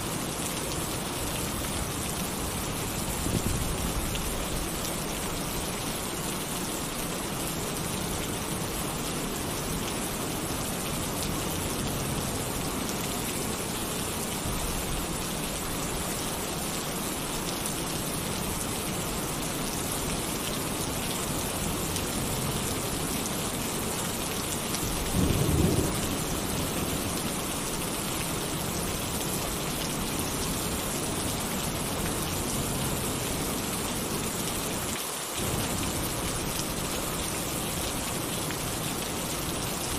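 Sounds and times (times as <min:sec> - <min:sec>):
heavy rain on a tin roof: 0:00.0 - 0:39.9
low thunder rumble: 0:25.1 - 0:26.6.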